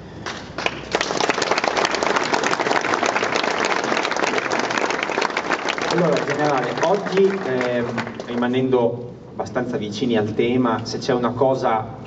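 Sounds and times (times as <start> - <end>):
audience applauding: 0.2 - 8.7.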